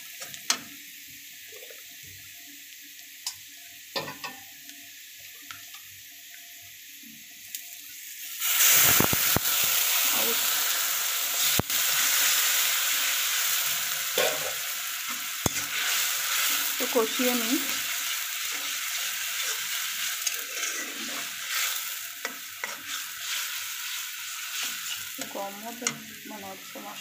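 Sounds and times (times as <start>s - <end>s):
loud sizzle of water in oil: 0.0s - 27.0s
onions frying in oil: 0.0s - 27.0s
metal spatula scraping: 18.5s - 26.1s.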